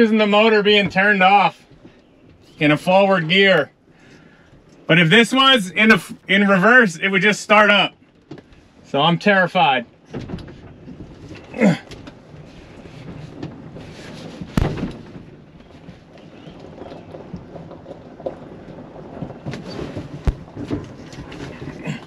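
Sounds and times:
truck cab rumbling and rattling: 0.0s - 22.0s
sharp thump: 14.5s - 15.2s.

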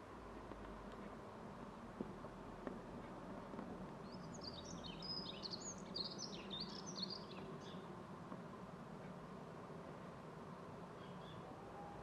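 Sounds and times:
faint background noise: 0.0s - 12.0s
songbird twittering: 4.0s - 7.9s, 11.0s - 11.5s.

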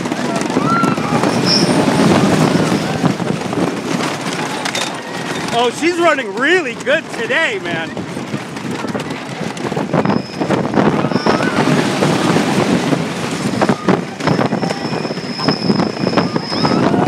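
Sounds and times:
roller coaster rattling on track: 0.0s - 17.0s
wind buffeting microphone: 0.0s - 17.0s.

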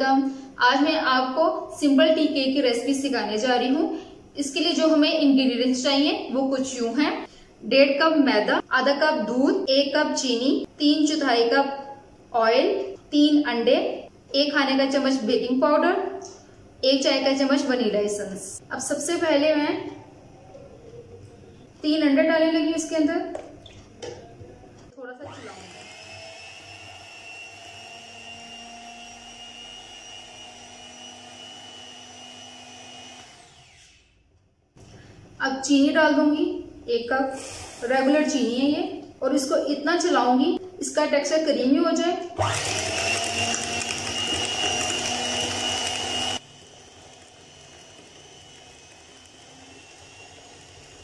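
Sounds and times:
electric stand mixer whisking: 25.2s - 33.8s, 42.4s - 51.0s.

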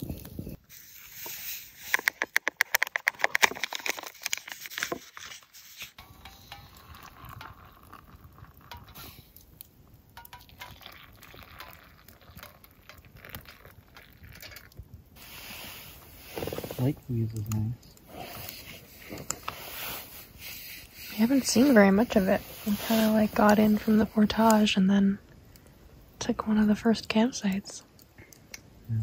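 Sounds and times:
pot clinking against metal mugs: 6.0s - 8.0s, 8.6s - 9.3s, 10.2s - 13.1s
water pouring into mug: 6.0s - 9.4s, 10.2s - 14.8s.

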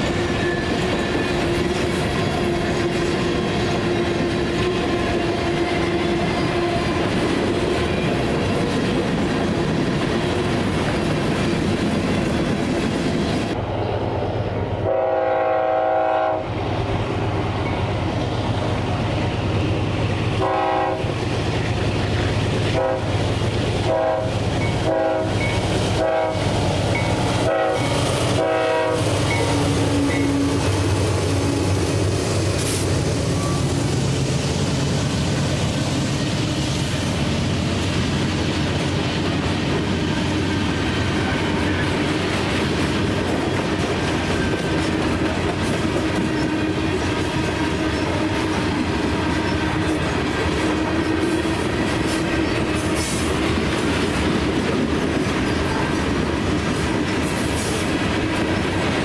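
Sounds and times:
diesel locomotive engine drone: 0.0s - 59.0s
locomotive horn blasts: 14.8s - 16.6s, 20.4s - 21.2s, 22.7s - 23.2s, 23.8s - 26.6s, 27.4s - 30.7s
train wheels clacking on rail joints: 16.8s - 59.0s.

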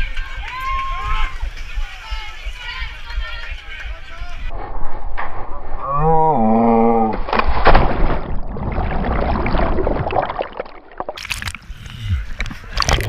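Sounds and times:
sloshing water: 7.3s - 11.8s, 12.6s - 13.0s.

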